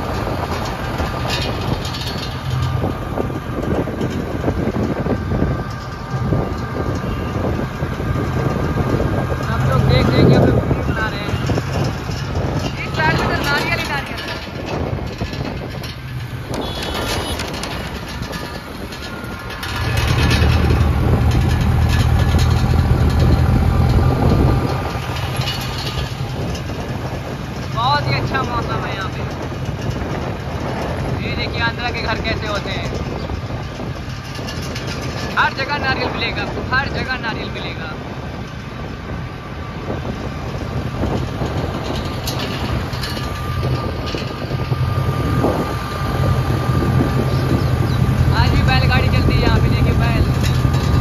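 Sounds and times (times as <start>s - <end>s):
short rattles: 0.0s - 37.8s, 39.8s - 51.0s
vehicle engine rumbling: 0.0s - 51.0s.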